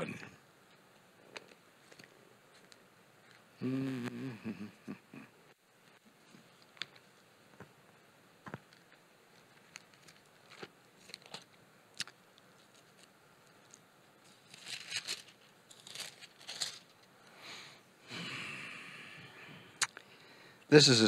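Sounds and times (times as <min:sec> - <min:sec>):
book pages rustling: 0:12.5 - 0:17.0.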